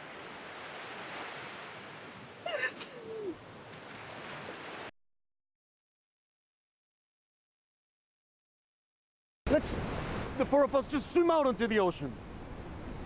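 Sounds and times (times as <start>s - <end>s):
surf washing on a beach: 0.0s - 4.9s, 9.5s - 13.0s
woman whimpering gasp: 2.5s - 3.4s.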